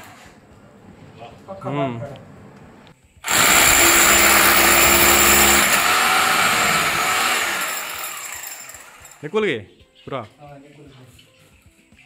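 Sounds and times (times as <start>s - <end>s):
hammer drill boring through wall: 3.2s - 9.2s.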